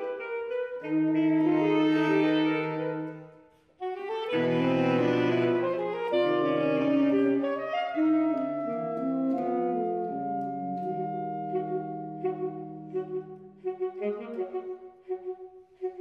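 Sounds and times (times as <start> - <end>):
saxophone quartet playing chords: 0.0 - 16.0.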